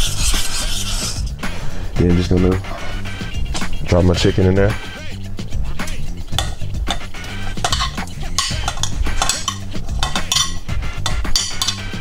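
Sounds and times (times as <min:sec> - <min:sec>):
background music: 0:00.0 - 0:12.0
spoon scraping a cooking pan: 0:05.8 - 0:12.0.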